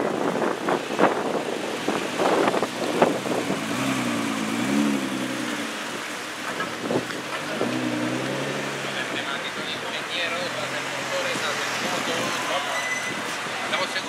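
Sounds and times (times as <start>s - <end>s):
car engine at low revs: 2.1s - 9.3s.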